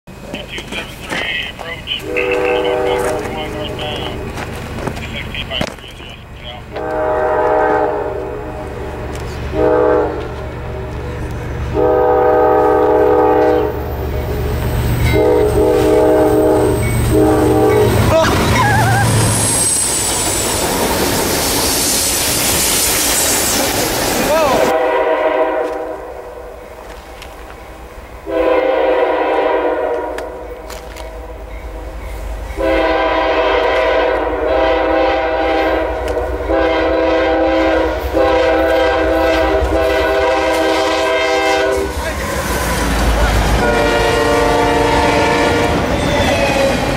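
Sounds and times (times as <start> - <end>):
locomotive engine rumbling: 0.1 - 46.9
locomotive air horn blasts: 1.9 - 4.3, 6.7 - 13.9, 15.1 - 18.3, 24.3 - 26.4, 28.2 - 30.6, 32.6 - 42.0, 43.6 - 45.8.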